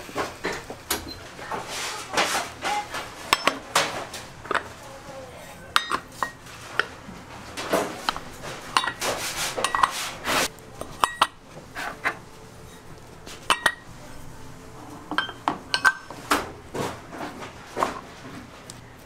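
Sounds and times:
metal scraping and rubbing: 0:01.4 - 0:18.6
metal molds clinking: 0:05.7 - 0:06.9, 0:07.6 - 0:09.0, 0:10.8 - 0:11.4, 0:13.4 - 0:13.9, 0:15.1 - 0:16.2.

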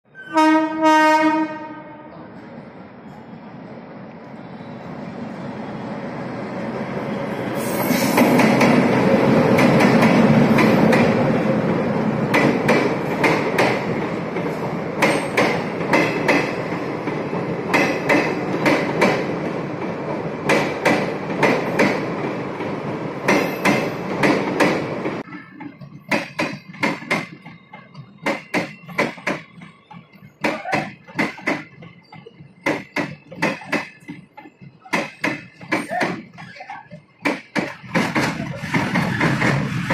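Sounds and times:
passing train rumble: 0:00.1 - 0:39.9
train wheels clacking over joints: 0:12.2 - 0:19.5, 0:20.4 - 0:39.9.

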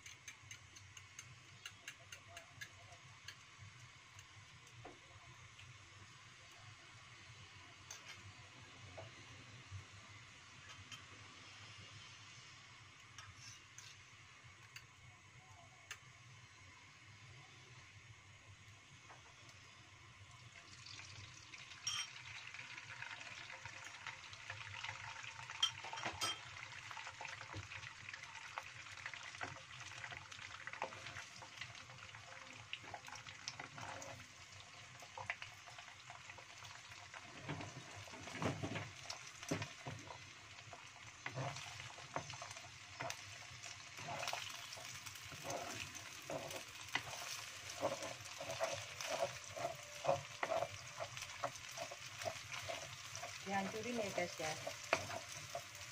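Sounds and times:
egg sizzling in oil: 0:00.0 - 0:55.9
wooden spatula scraping a pan: 0:30.8 - 0:31.8, 0:32.8 - 0:34.4, 0:37.2 - 0:55.9.

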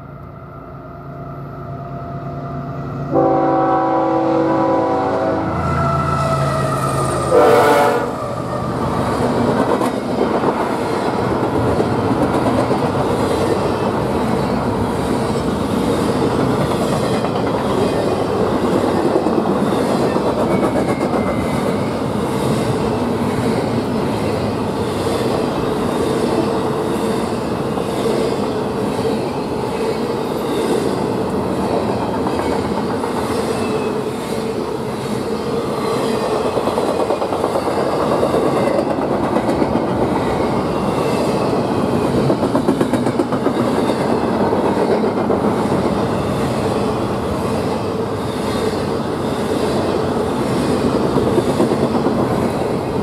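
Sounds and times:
train air horn blast: 0:03.1 - 0:08.2
train wheel clatter: 0:09.1 - 0:14.0, 0:14.9 - 0:31.0, 0:31.7 - 0:34.0, 0:35.9 - 0:53.0.

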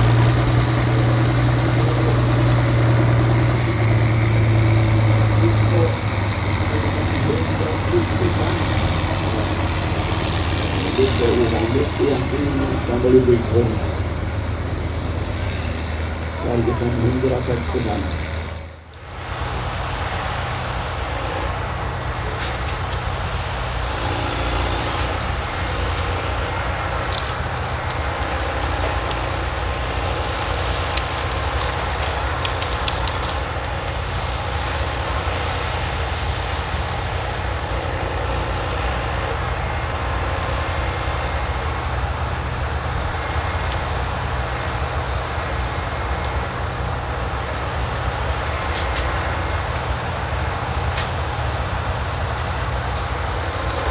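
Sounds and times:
diesel engine running: 0:00.0 - 0:53.9.

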